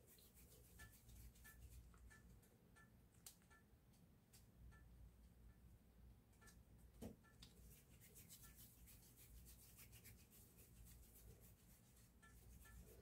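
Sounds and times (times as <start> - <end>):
hands rubbing dough: 0.0 - 2.1, 7.4 - 13.0.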